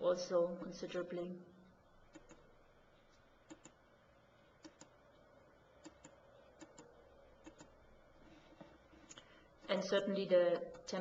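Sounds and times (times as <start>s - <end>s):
computer mouse clicks: 2.1s - 2.5s, 3.4s - 3.8s, 4.6s - 5.0s, 5.8s - 7.8s.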